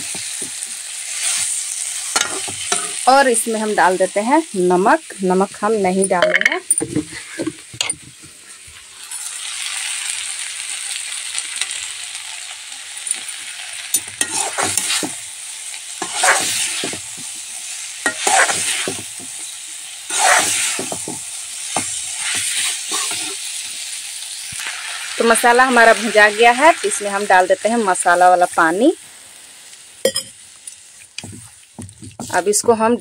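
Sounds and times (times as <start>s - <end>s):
paste sizzling in oil: 0.0s - 6.0s, 8.4s - 33.0s
spatula scraping pan: 14.2s - 15.2s, 16.0s - 17.1s, 18.0s - 19.5s, 20.1s - 23.4s, 31.1s - 33.0s.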